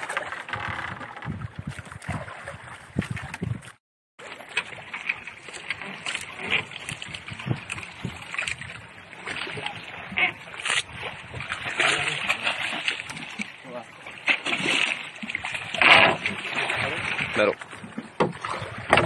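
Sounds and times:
water splashing against boat: 0.0s - 19.0s.

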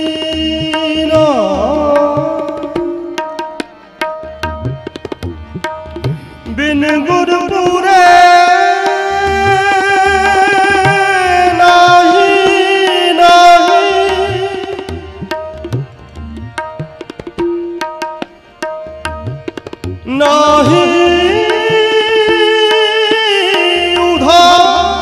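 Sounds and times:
harmonium: 0.0s - 25.0s
tabla strokes: 0.0s - 25.0s
man singing long held note: 6.5s - 15.0s, 20.1s - 25.0s.

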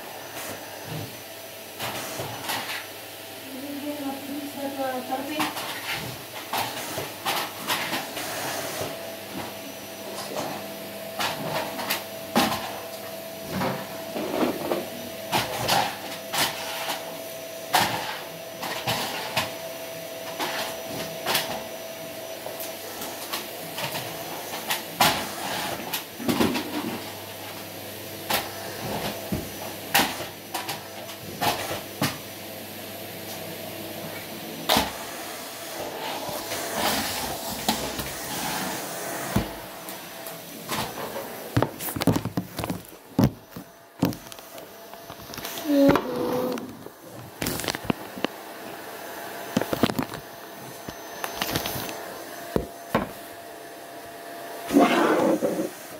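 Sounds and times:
vacuum wand and hose knocking: 35.8s - 48.4s
household things bumped: 40.7s - 44.4s.

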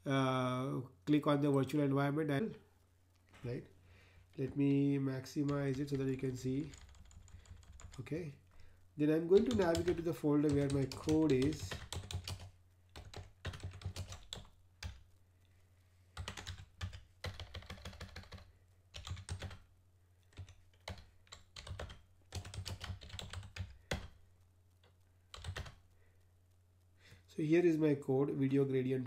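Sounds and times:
low steady hum: 0.0s - 29.0s
computer keyboard typing: 5.4s - 8.1s, 9.3s - 15.1s, 16.2s - 19.7s, 20.3s - 24.2s, 24.8s - 25.8s.

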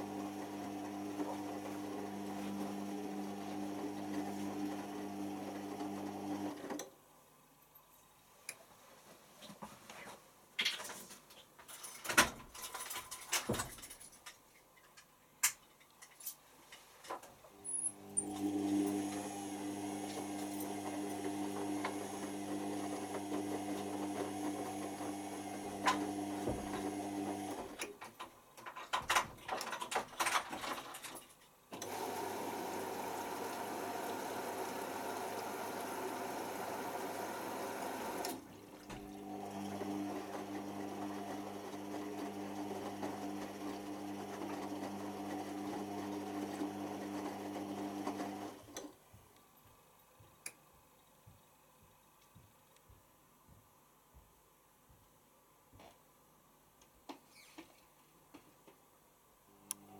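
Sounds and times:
washing machine drum motor humming: 18.2s - 27.7s, 31.8s - 46.2s
water running in: 31.8s - 40.0s.

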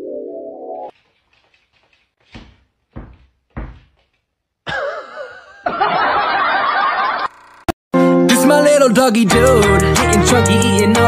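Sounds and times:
dull thumps: 1.8s - 4.3s
crowd laughing: 4.8s - 7.4s.

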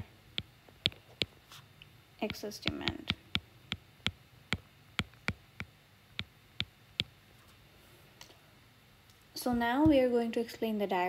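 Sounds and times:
stylus tapping on glass screen: 2.3s - 7.1s.

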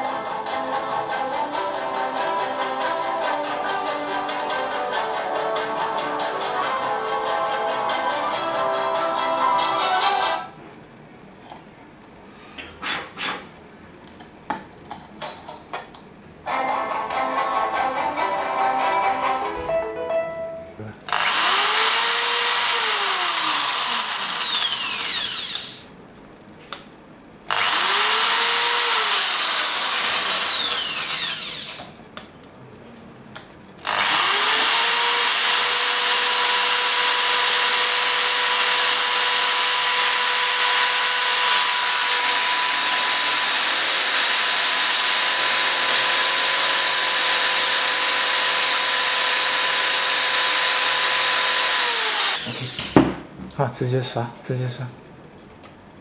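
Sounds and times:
electric drill boring: 21.1s - 25.9s, 27.5s - 32.0s, 33.8s - 53.0s.

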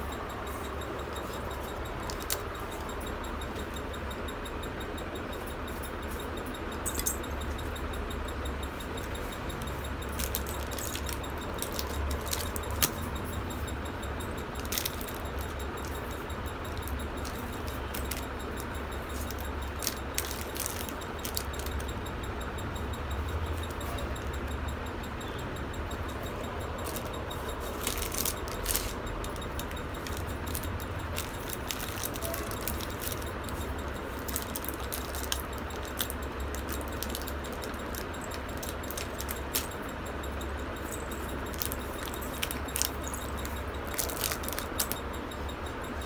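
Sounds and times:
jingling anklet bells and bangles: 0.0s - 46.0s
steady low hum: 0.0s - 46.0s.

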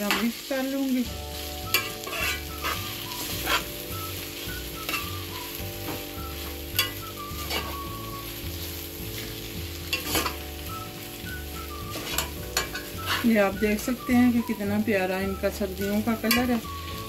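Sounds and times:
light sizzle: 0.0s - 17.0s
spoon stirring in steel pot: 1.7s - 3.8s, 11.9s - 13.3s
spoon clinking against pot: 6.8s - 7.7s, 12.0s - 13.2s.

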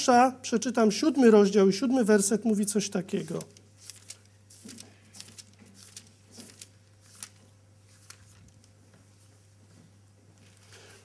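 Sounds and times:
pages rustling: 3.1s - 8.8s
short paper crackles: 3.2s - 8.7s.

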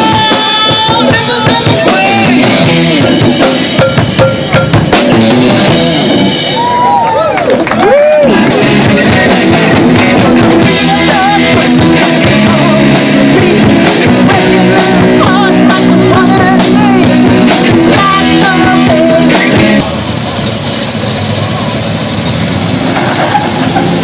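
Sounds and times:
women singing: 0.0s - 2.6s, 8.7s - 19.6s
drum kit beat: 0.0s - 6.8s, 7.8s - 24.0s
electric guitars: 0.0s - 24.0s.

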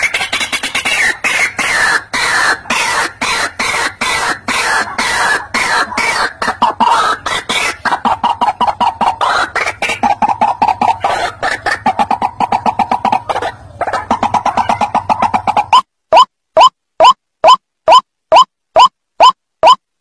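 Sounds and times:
bird harsh croaking calls: 0.0s - 15.8s.

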